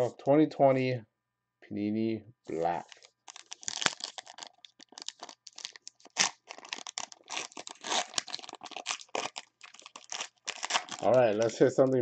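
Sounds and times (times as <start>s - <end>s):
foil wrapper tearing and crinkling: 2.8s - 11.6s.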